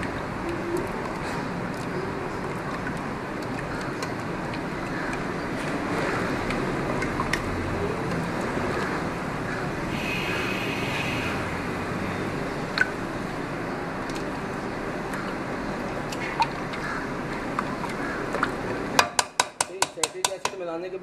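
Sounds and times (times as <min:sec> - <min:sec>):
steady background noise: 0:00.0 - 0:21.0
spatula clicking against pot: 0:19.0 - 0:20.6.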